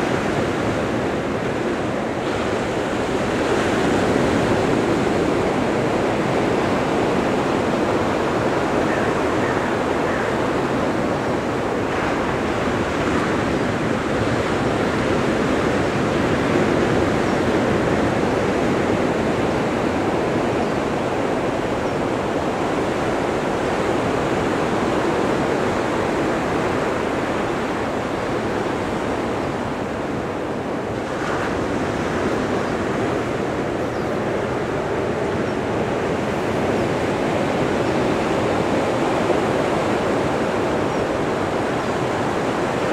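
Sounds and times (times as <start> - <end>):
small waves breaking on shore: 0.0 - 42.9.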